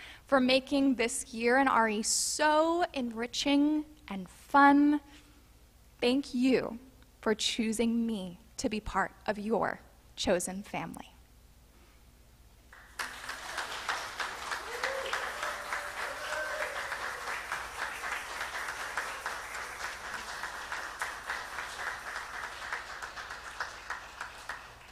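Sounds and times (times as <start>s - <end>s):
congregation applauding: 12.7s - 24.9s.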